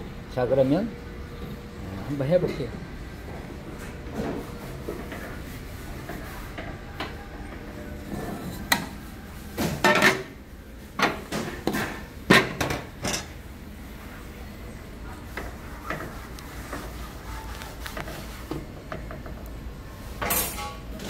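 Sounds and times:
pots and pans clattering: 9.6s - 10.4s, 11.0s - 13.4s, 20.2s - 21.0s.

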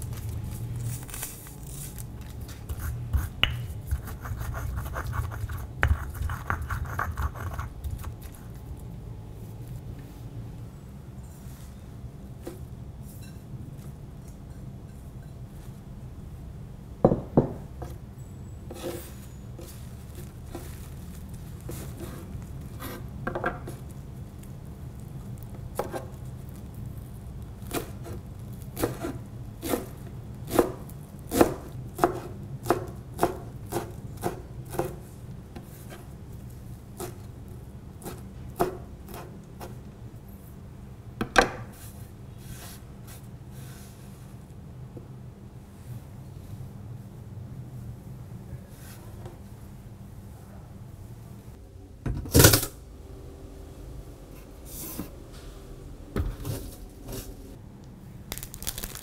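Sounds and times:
knife chopping on wooden board: 30.5s - 35.0s.

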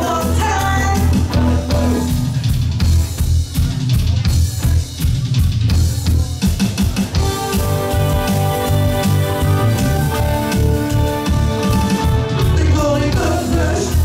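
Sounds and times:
electric guitars: 0.0s - 3.4s, 7.1s - 14.0s
drum kit: 0.0s - 14.0s
electric bass: 0.0s - 14.0s.

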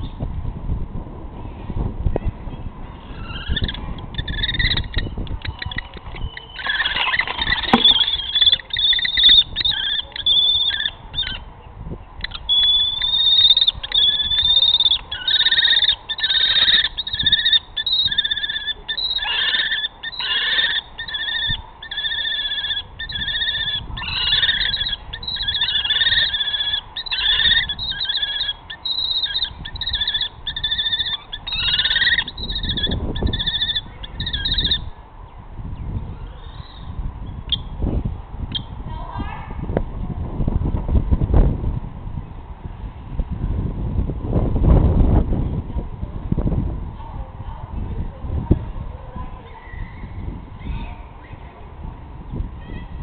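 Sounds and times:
kestrel whining calls: 3.0s - 11.5s, 12.2s - 34.9s.

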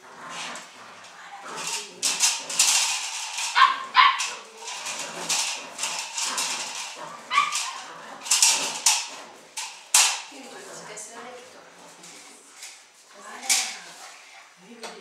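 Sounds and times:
puppy yapping: 3.5s - 4.4s, 7.3s - 7.9s.

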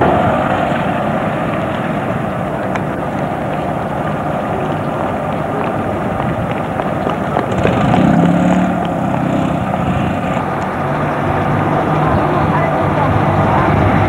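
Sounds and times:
low engine hum: 0.0s - 14.0s
street noise rumbling hiss: 0.0s - 14.0s.

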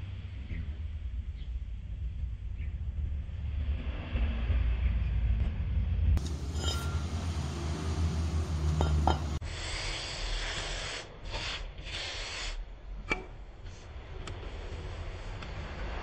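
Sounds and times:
steady low rumble: 0.0s - 11.8s, 12.6s - 16.0s
metal brake discs clinking: 6.2s - 7.5s, 8.4s - 9.4s.

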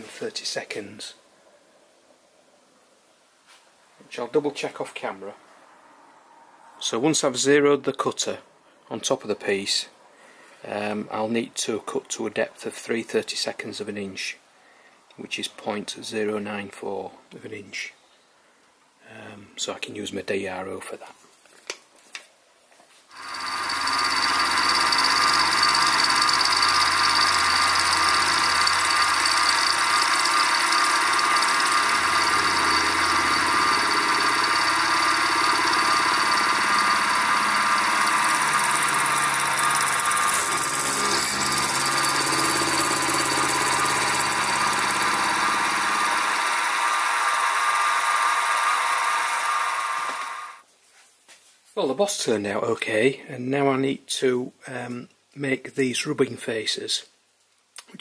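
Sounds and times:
mini mill cutting brass: 23.1s - 50.6s.

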